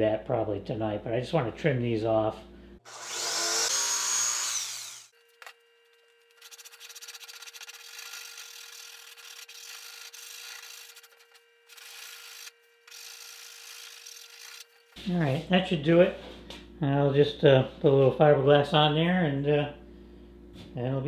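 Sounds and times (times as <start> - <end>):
jigsaw spinning down: 2.9 - 5.1
sandpaper rubbing on plywood: 6.4 - 14.6.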